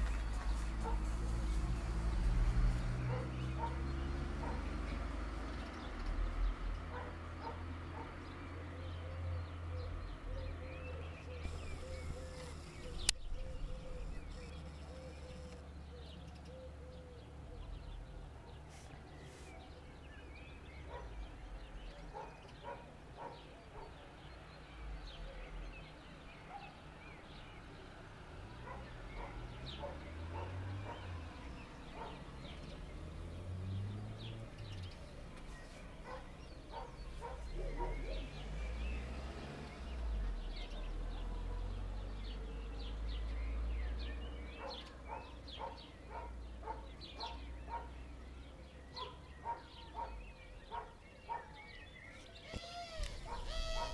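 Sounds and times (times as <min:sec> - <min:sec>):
birds calling: 0:00.0 - 0:53.9
dog barking: 0:00.8 - 0:01.1, 0:03.0 - 0:04.7, 0:06.9 - 0:08.2, 0:20.8 - 0:21.2, 0:22.0 - 0:24.0, 0:26.5 - 0:26.8, 0:28.6 - 0:31.2, 0:31.9 - 0:32.3, 0:36.0 - 0:38.3, 0:40.8 - 0:41.8, 0:44.6 - 0:48.0, 0:49.0 - 0:51.6, 0:53.1 - 0:53.9.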